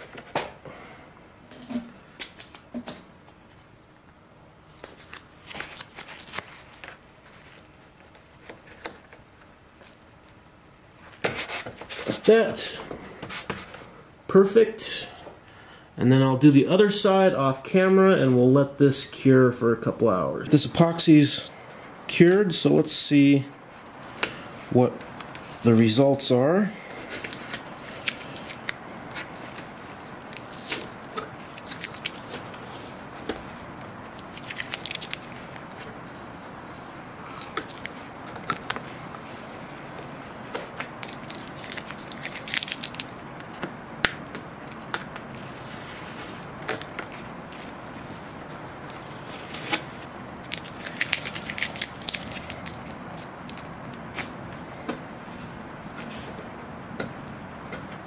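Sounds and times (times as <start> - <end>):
masking tape peeling and crackling: 4.7 - 12.3, 23.8 - 54.4.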